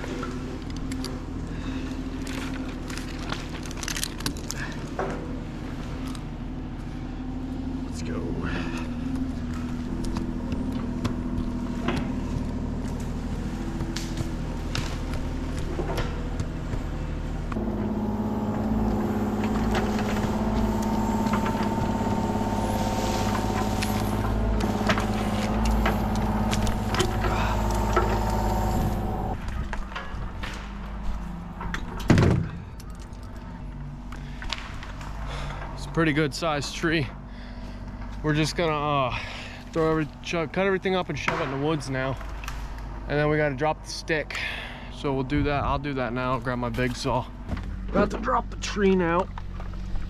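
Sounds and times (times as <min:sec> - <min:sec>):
engine running: 0:00.0 - 0:50.0
scattered clicks: 0:17.5 - 0:29.4.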